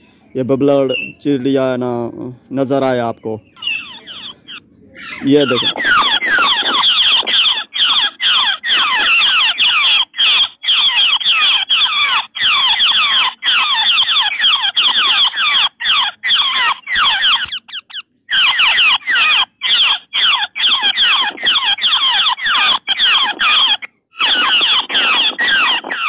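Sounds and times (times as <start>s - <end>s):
recorded bird chatter from speaker: 0.0s - 26.0s.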